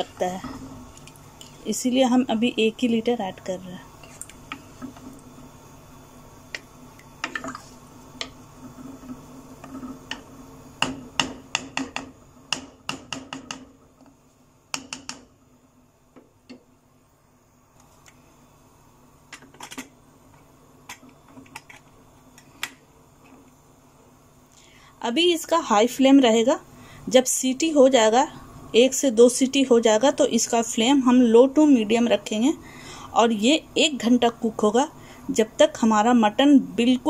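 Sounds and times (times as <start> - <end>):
spoon knocking in metal pot: 10.8 - 13.7.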